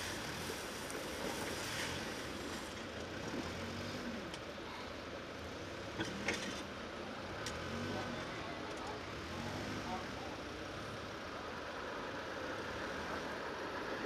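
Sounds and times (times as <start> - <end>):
fire hose spraying water: 0.0 - 4.9
engine running: 0.0 - 14.0.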